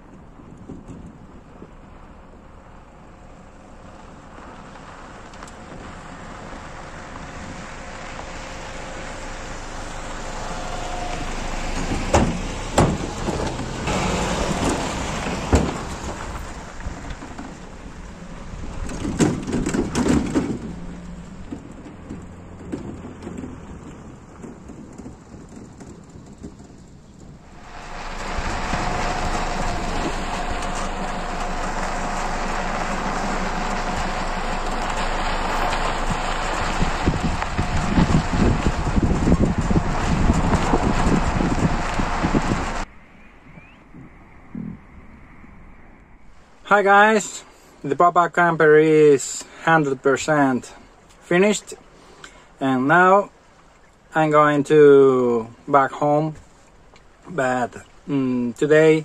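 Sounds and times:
tyres on gravel: 0.0 - 42.9
truck engine: 0.0 - 43.0
tyre and wind noise rush: 4.8 - 47.1
knocks and rattles over bumps: 11.2 - 42.9.

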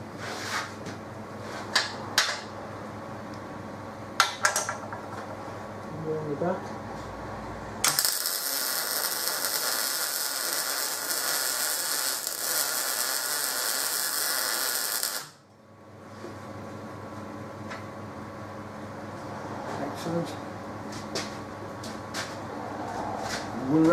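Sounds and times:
faint background hum: 0.0 - 23.9
arc welder crackling hiss: 7.8 - 15.4.

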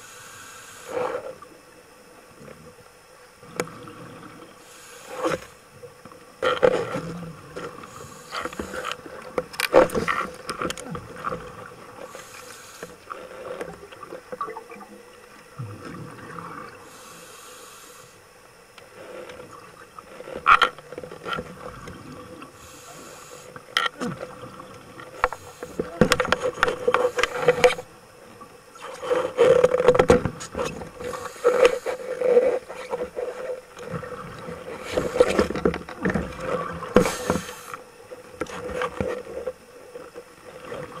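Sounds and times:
boat motor hum underwater: 0.0 - 41.0.

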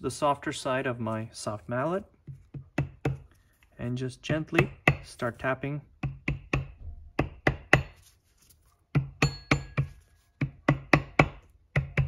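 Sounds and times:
mallet tapping on metal housing: 9.0 - 12.0.

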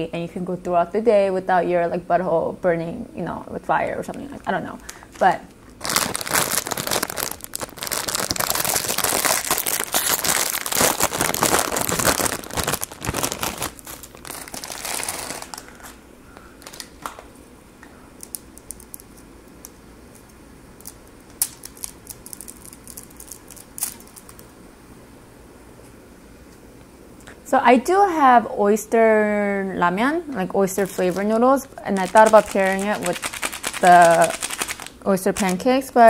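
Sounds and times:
plastic packet crinkling and tearing: 4.8 - 16.0, 16.6 - 17.2, 18.2 - 19.2, 20.8 - 24.4, 30.7 - 35.6.

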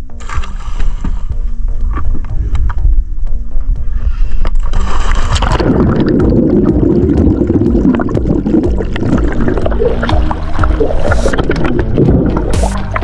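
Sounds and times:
background music: 0.0 - 13.0
underwater bubbling rush: 4.7 - 13.0.

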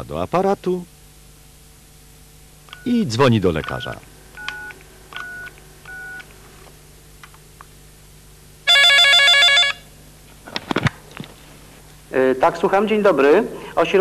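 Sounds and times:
telephone keypad dialling tones: 4.4 - 6.2
electronic telephone ring: 8.7 - 9.9.

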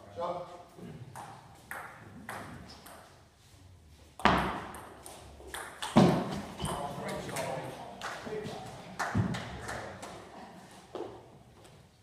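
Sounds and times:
table tennis ball hits: 1.1 - 3.0, 4.2 - 6.9.

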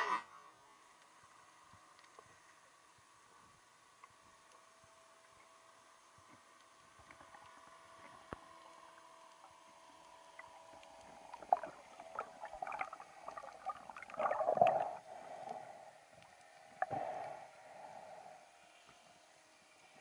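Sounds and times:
underwater water movement: 6.2 - 18.8.

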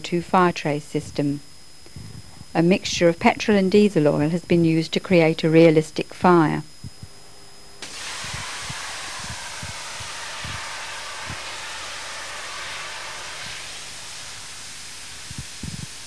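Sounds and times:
gas hissing from nozzle: 7.8 - 16.0.

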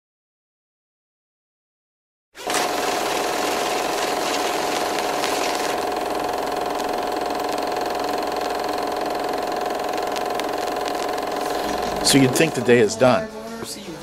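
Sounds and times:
film projector whirring: 2.4 - 13.2.

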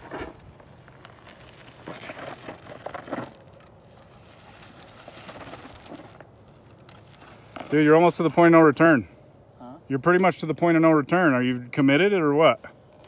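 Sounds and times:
gravel crunching under tyres: 0.0 - 9.1.

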